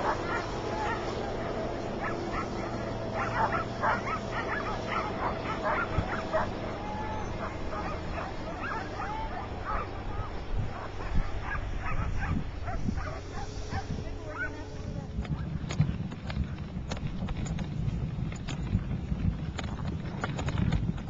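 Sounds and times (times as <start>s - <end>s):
sled dogs yipping and whining: 0.0s - 14.7s
vehicle engine running: 0.0s - 21.0s.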